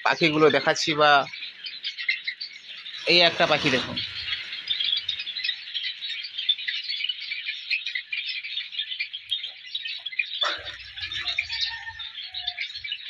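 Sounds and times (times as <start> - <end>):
sparrows chirping: 0.0 - 13.0
low rustle: 2.9 - 5.5.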